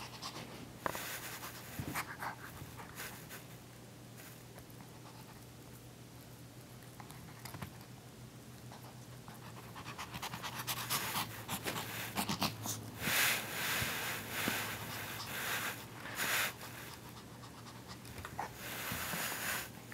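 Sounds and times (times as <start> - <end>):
dog panting: 8.8 - 19.4.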